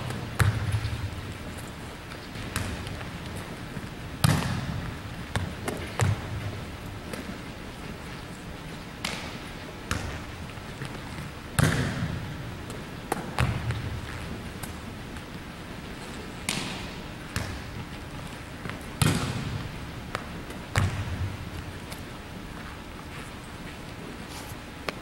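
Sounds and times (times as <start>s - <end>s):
volleyballs smacked by hand: 0.0s - 7.4s, 9.0s - 14.8s, 16.0s - 22.0s.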